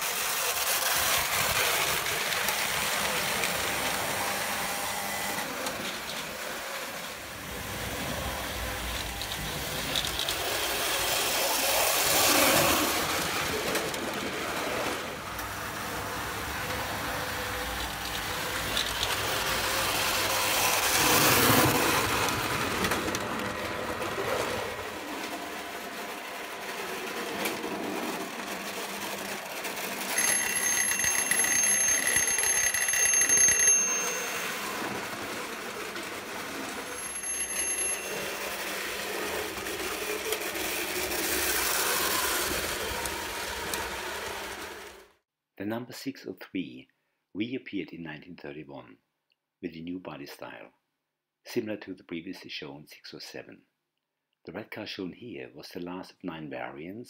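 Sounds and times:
toy electric train rattling: 0.0s - 45.2s
high ringing bell: 30.0s - 35.3s, 36.7s - 39.4s.

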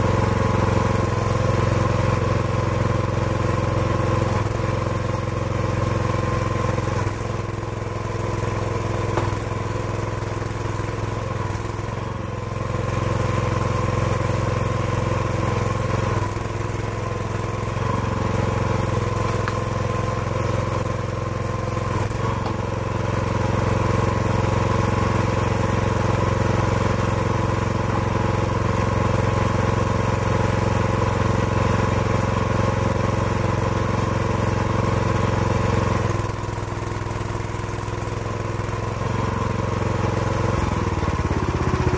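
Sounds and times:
small gasoline engine running: 0.0s - 41.9s.

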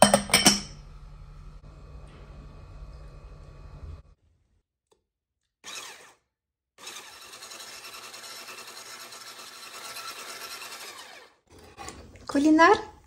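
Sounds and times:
electric hand blender whisking: 5.6s - 6.2s, 6.8s - 12.5s.

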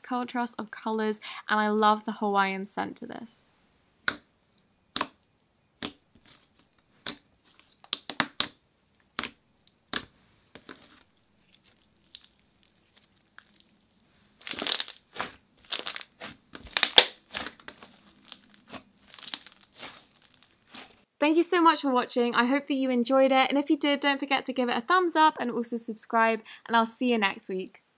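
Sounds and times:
slime crackling squelches: 5.8s - 21.1s
slime popping and clicking: 15.7s - 18.4s.

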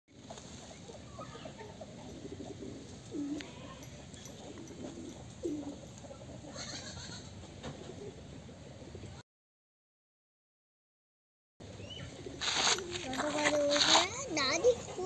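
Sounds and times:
chickens clucking: 0.2s - 8.7s, 13.4s - 15.0s.

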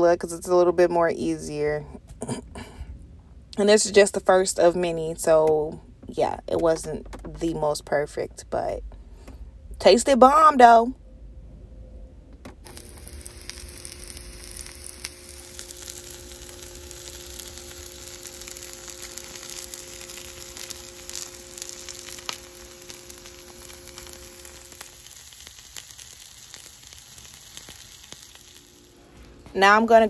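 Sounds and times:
taco sizzling in skillet: 12.6s - 29.4s.

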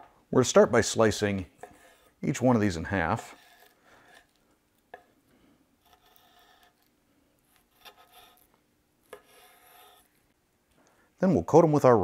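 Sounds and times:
knife slicing meat: 3.2s - 4.4s, 5.8s - 10.1s.

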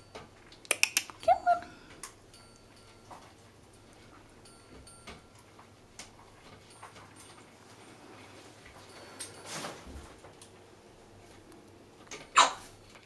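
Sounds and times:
parrot clicking: 0.5s - 1.2s.

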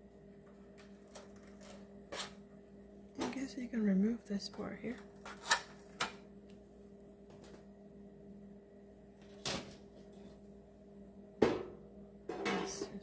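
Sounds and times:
knock from handling fryer parts: 11.4s - 12.7s.

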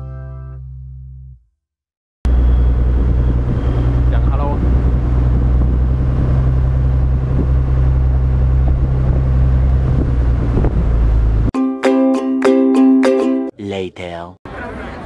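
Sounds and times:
boat engine droning: 2.3s - 11.5s
wind noise on microphone: 2.3s - 11.5s
plucked ukulele music: 11.6s - 13.5s.

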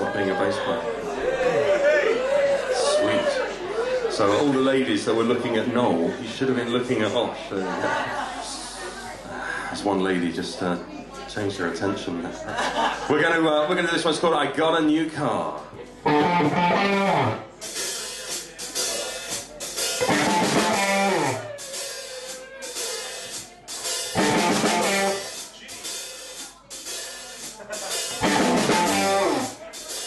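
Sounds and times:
bass guitar: 16.0s - 17.6s, 19.4s - 23.5s, 24.1s - 25.3s, 28.1s - 29.7s
electric guitar phrase: 16.1s - 17.4s, 20.1s - 21.4s, 24.2s - 25.2s, 28.2s - 29.5s
drum kit with cymbals: 16.1s - 30.0s.

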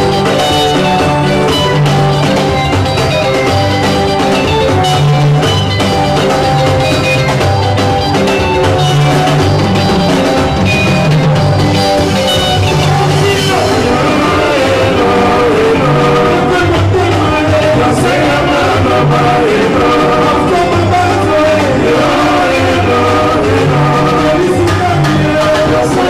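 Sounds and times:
bass guitar: 0.0s - 26.0s
drums: 0.0s - 26.0s
electric guitar lines: 0.0s - 26.0s
person singing: 12.4s - 26.0s.

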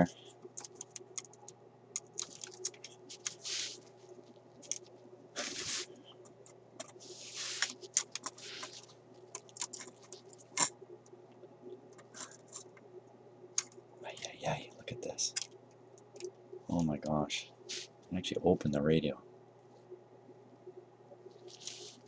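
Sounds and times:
scraping rustles: 2.2s - 6.1s, 6.8s - 10.4s
small clicks and taps: 13.6s - 13.8s.

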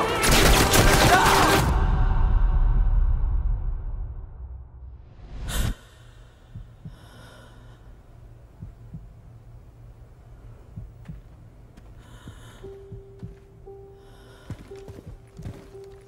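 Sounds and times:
faint breaths: 5.5s - 8.8s, 11.8s - 15.7s
slow heartbeat thumps: 6.2s - 7.2s, 7.9s - 9.7s, 10.5s - 15.9s.

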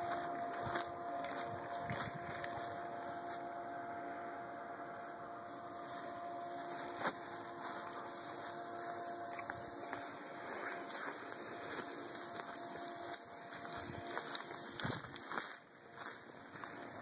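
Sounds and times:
faint steady hum: 0.0s - 17.0s
outdoor background hiss: 0.0s - 17.0s.

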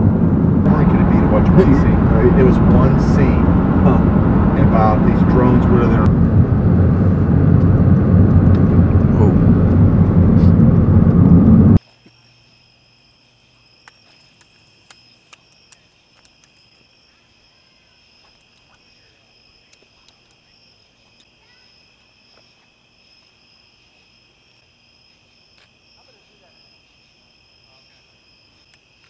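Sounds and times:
loud low rushing noise: 0.0s - 11.8s
crickets trilling: 11.8s - 29.0s.

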